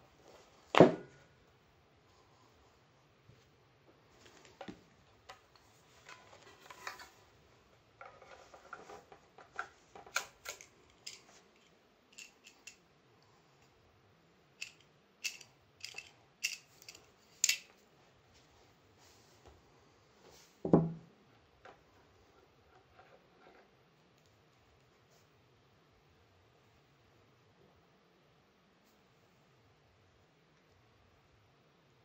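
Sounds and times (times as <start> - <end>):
clicks and taps handling parts: 8.0 - 12.8, 14.6 - 17.8.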